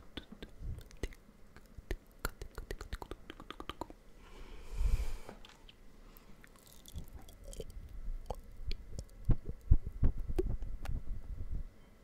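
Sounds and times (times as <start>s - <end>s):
wet mouth clicks and smacks: 0.1s - 4.0s.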